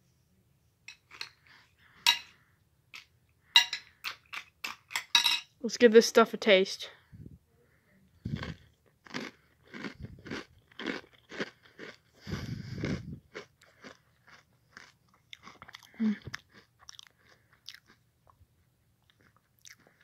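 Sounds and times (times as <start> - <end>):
cereal crunching while chewed: 8.3 - 18.4, 19.0 - 20.0.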